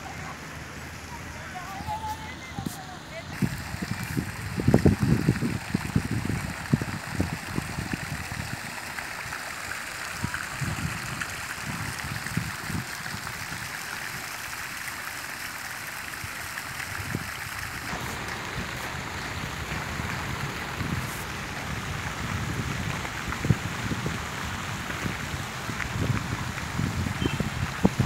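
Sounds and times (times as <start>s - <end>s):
fountain water splashing: 0.0s - 28.0s
low rumbles: 17.9s - 26.4s.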